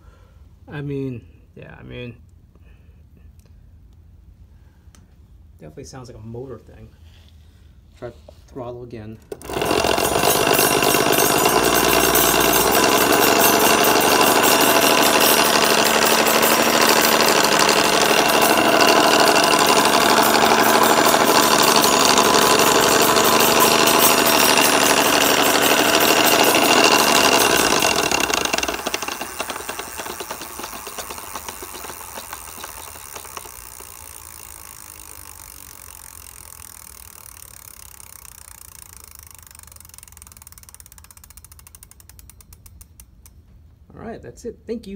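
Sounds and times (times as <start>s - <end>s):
hub motor rattling and grinding: 9.1s - 43.4s
coasting wheel clicks: 9.2s - 43.4s.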